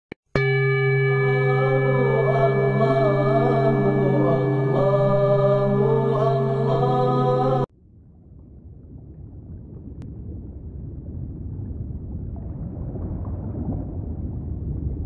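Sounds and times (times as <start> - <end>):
chanted vocals: 1.0 - 7.7.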